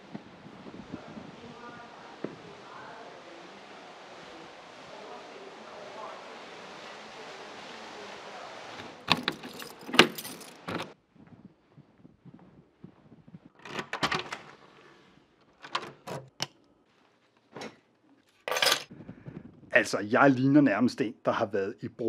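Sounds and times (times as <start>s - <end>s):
key turning in door lock: 9.1s - 11.0s
keys jangling: 9.1s - 11.0s.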